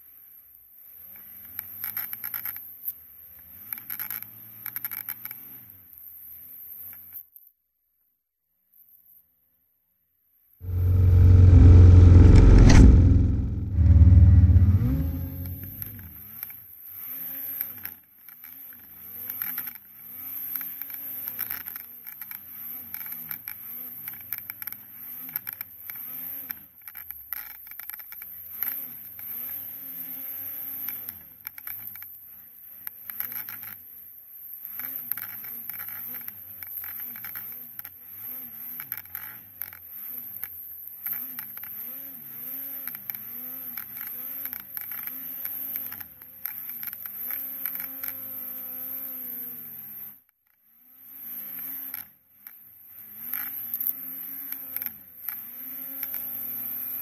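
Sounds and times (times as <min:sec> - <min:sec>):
snowmobile engine revving: 0:10.6 - 0:16.0.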